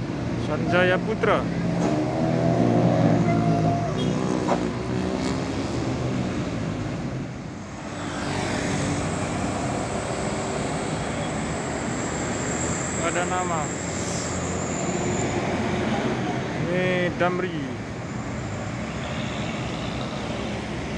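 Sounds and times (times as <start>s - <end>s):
bus approaching with high whine: 0.0s - 20.9s
road traffic: 0.0s - 20.9s
diesel bus engine pulling away: 7.6s - 16.5s.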